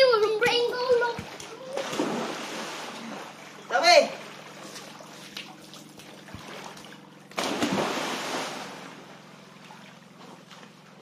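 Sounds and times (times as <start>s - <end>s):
water sloshing and dripping: 0.0s - 11.0s
person splashing into water: 1.2s - 3.4s, 4.3s - 9.0s.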